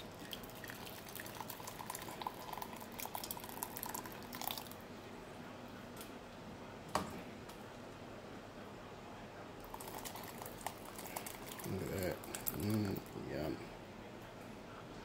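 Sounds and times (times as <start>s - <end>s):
soup dripping: 0.0s - 4.8s, 9.6s - 13.5s.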